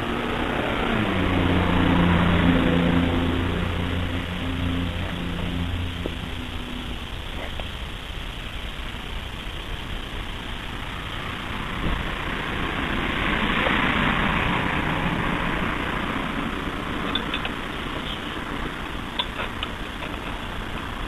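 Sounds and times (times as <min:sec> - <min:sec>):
small metallic clicks: 0:17.1 - 0:20.9.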